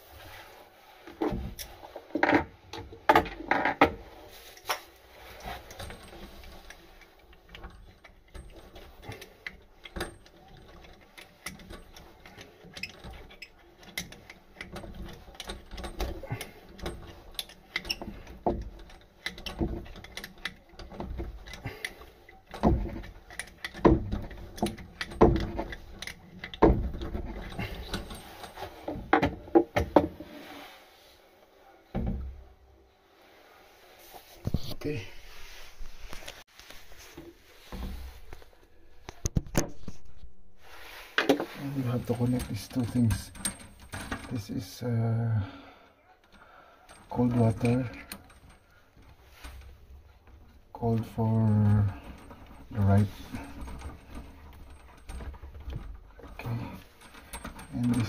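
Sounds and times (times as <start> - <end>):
tools clicking and knocking: 1.1 - 30.4, 41.2 - 44.6, 46.2 - 58.0.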